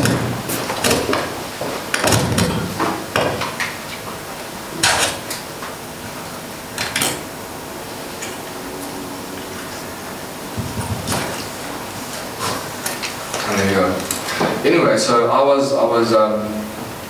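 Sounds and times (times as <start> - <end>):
microphone handling scrapes and bumps: 10.5 - 11.5.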